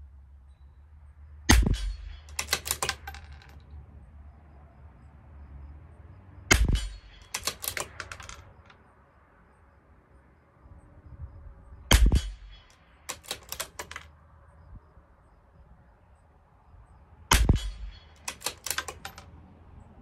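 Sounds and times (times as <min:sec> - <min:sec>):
rifle bolt metallic clicks: 0:01.5 - 0:03.6, 0:06.5 - 0:08.8, 0:11.9 - 0:14.1, 0:17.3 - 0:19.4
rifle shots: 0:06.5 - 0:08.5, 0:11.9 - 0:14.0, 0:17.3 - 0:19.2.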